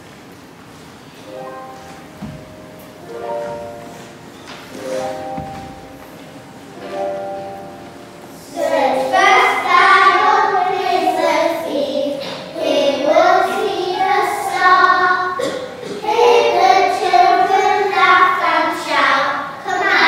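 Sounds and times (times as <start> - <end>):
young children singing together: 6.9 - 20.0.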